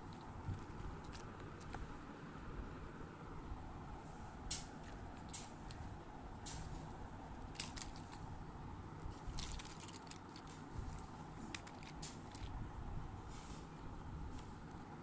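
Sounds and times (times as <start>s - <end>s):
low background hum: 0.0s - 15.0s
plastic toys clicking and clattering: 7.4s - 8.2s, 9.1s - 12.6s.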